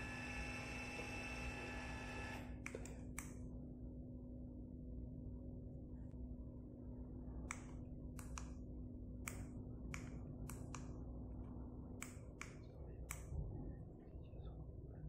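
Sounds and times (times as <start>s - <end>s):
actuator motor humming: 0.0s - 2.6s.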